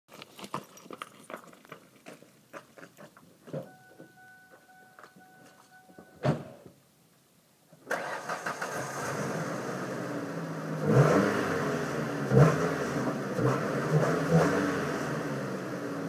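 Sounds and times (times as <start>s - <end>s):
footsteps on gravel: 0.1s - 3.7s
two-note car warning tone: 3.6s - 6.2s
car door shutting: 6.0s - 6.6s.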